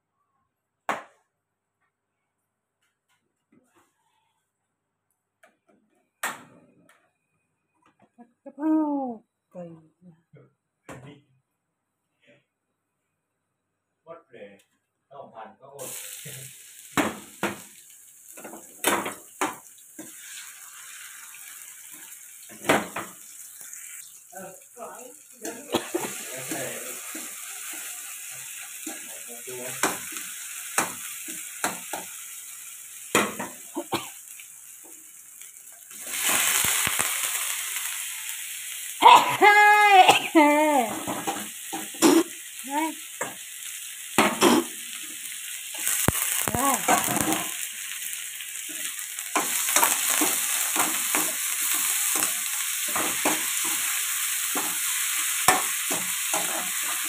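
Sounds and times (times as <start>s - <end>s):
chicken sizzling: 15.7s - 57.0s
garlic and chilies frying in oil: 15.8s - 57.0s
spatula scraping a wok: 52.9s - 57.0s.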